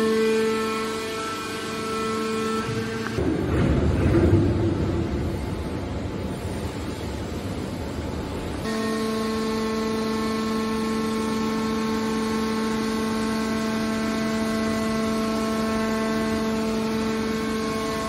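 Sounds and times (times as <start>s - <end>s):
hydraulic power unit humming: 0.0s - 18.0s.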